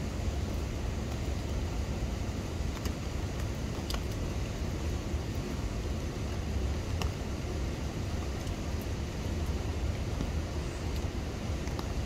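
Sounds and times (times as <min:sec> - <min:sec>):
light rainfall: 0:00.0 - 0:12.0
water drip ticks: 0:02.6 - 0:04.6, 0:05.2 - 0:12.0.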